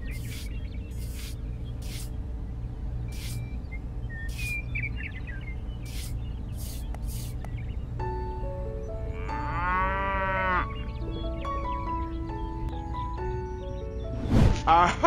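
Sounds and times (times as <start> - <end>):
trowel scraping sand: 0.0 - 2.1, 3.2 - 3.4, 5.9 - 7.4
simple music melody: 7.8 - 14.1
cow mooing: 9.1 - 10.7.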